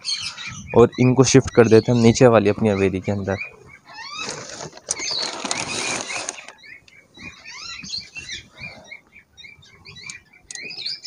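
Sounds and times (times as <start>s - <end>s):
small birds chirping: 0.0s - 11.0s
loud rustling: 4.1s - 6.6s.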